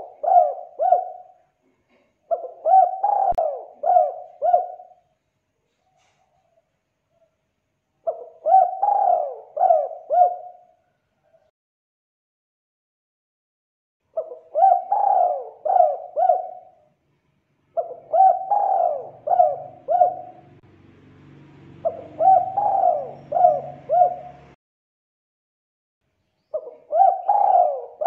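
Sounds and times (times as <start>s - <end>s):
dove cooing: 0.0s - 5.1s, 8.0s - 11.5s, 14.1s - 16.9s, 17.7s - 20.6s, 21.7s - 24.6s, 26.5s - 28.0s.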